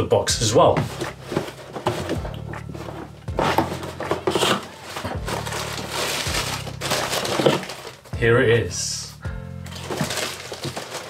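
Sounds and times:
background music: 0:00.0 - 0:11.0
cardboard rustling: 0:00.5 - 0:08.1, 0:09.7 - 0:11.0
cardboard box lid opening: 0:00.7 - 0:08.0.

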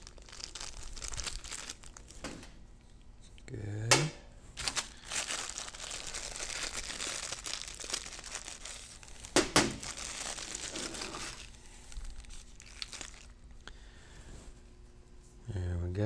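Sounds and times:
plastic bag crinkling: 0:00.0 - 0:02.3, 0:04.6 - 0:13.6.

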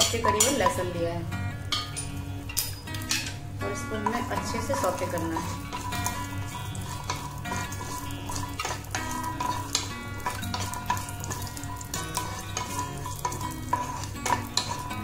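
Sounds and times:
background music: 0:00.0 - 0:15.0
garlic sizzling in hot oil: 0:00.0 - 0:15.0
wooden spatula scraping pan: 0:03.9 - 0:15.0.

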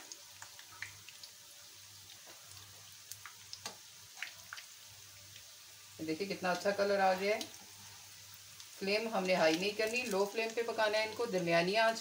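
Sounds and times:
food sizzling in hot oil: 0:00.0 - 0:12.0
crackles and pops: 0:02.1 - 0:04.7.

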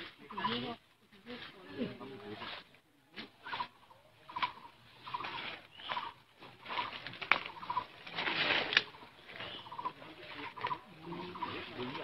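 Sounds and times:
bird chirping: 0:00.2 - 0:00.8, 0:03.4 - 0:12.0
rustling: 0:04.3 - 0:12.0.

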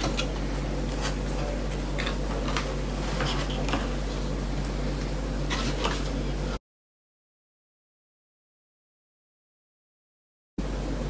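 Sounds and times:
steady low hum: 0:00.0 - 0:06.6, 0:10.6 - 0:11.0.

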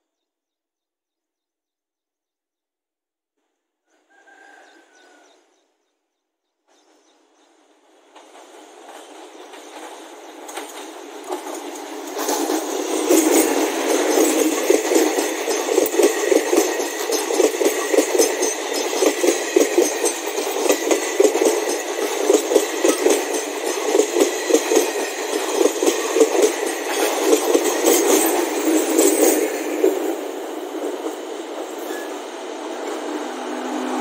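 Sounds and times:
train wheels clattering over rail joints: 0:08.0 - 0:32.0.

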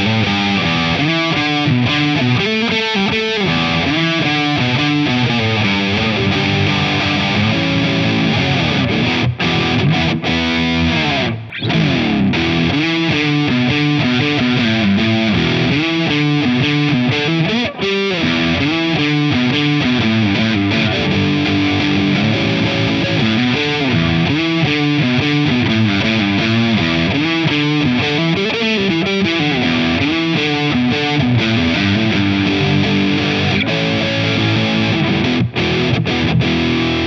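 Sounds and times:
distorted electric guitar: 0:00.0 - 0:37.0.

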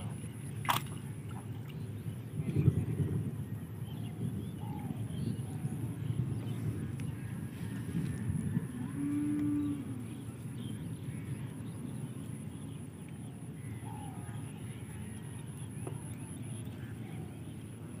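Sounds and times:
cow mooing: 0:08.8 - 0:10.0.

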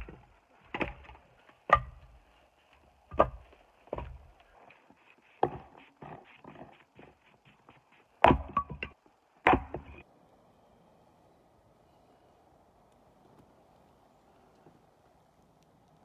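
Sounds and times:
firewood logs knocking together: 0:00.0 - 0:02.3, 0:03.1 - 0:10.0.

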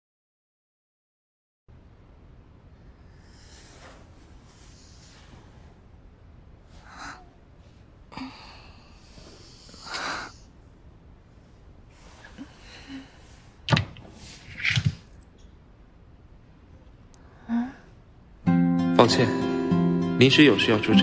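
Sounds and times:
bedding rustling: 0:11.8 - 0:15.2.

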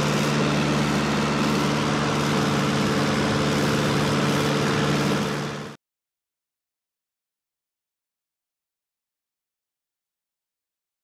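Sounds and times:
propeller airplane engine droning: 0:00.0 - 0:05.8.

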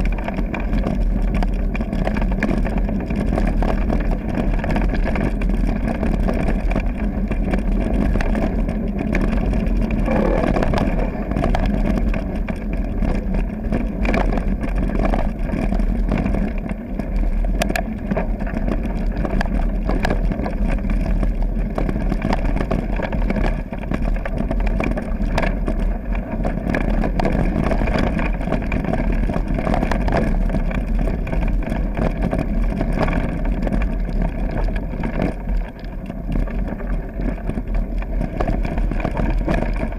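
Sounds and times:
bike clicks and rattles: 0:00.0 - 0:39.9
tyres rumbling on gravel: 0:00.0 - 0:39.9
wind rushing past microphone: 0:03.9 - 0:16.6.

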